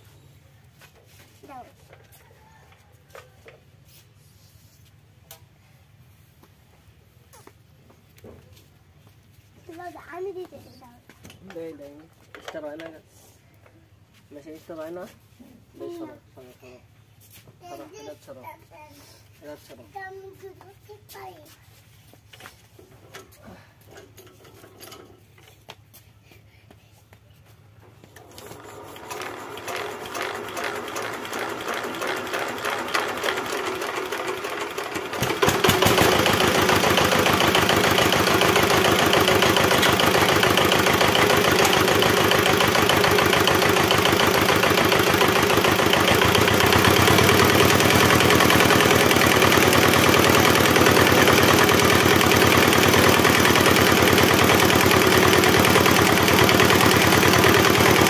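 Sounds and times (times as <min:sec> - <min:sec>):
diesel engine hand-cranked: 0:28.1 - 0:58.0
diesel engine running: 0:34.8 - 0:58.0.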